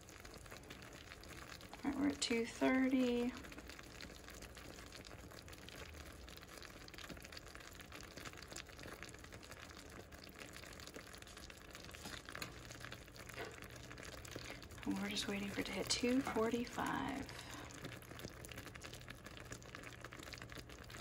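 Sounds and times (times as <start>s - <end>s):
sugar syrup bubbling: 0.0s - 21.0s.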